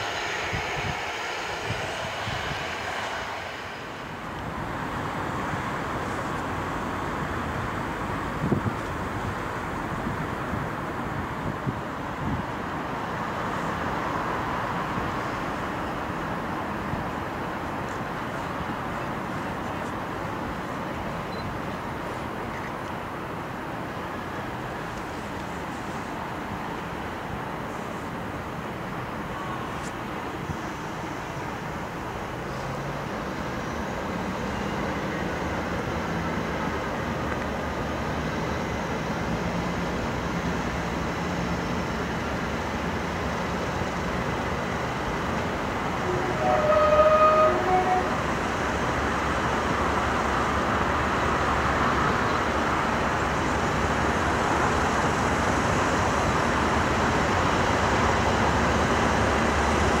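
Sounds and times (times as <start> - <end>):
diesel locomotive engine: 0.0 - 60.0
train running noise: 0.0 - 60.0
three-note train horn: 46.0 - 48.2.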